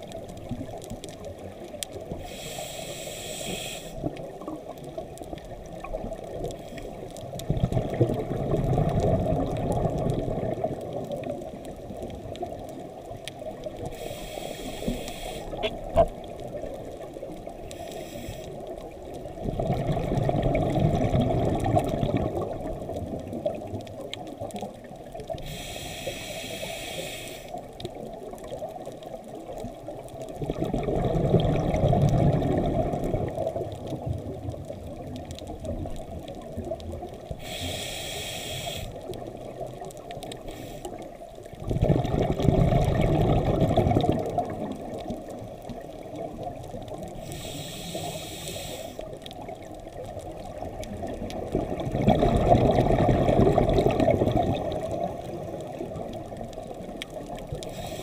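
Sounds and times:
diver inhaling through regulator: 2.2s - 4.0s, 13.9s - 15.7s, 17.8s - 18.6s, 25.4s - 27.6s, 37.4s - 39.0s, 47.2s - 49.1s, 57.7s - 58.0s
exhaled bubbles rushing: 7.4s - 12.4s, 19.0s - 24.1s, 30.0s - 37.1s, 41.6s - 47.1s, 49.5s - 57.6s.

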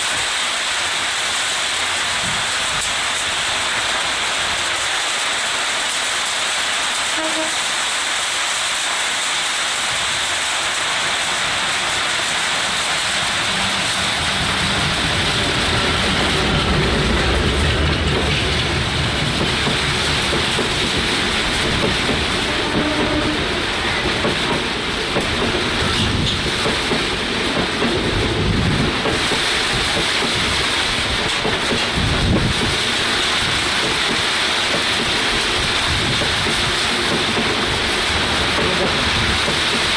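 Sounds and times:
heavy rain pouring: 0.0s - 39.9s
train wheels clacking over rail joints: 0.0s - 39.9s
locomotive diesel engine: 10.4s - 39.9s.

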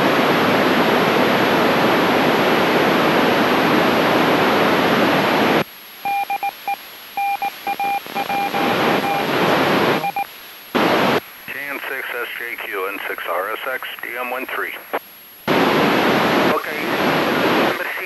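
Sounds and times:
radio static hiss: 0.0s - 18.0s
morse code beeps: 6.1s - 9.3s, 10.0s - 10.3s.

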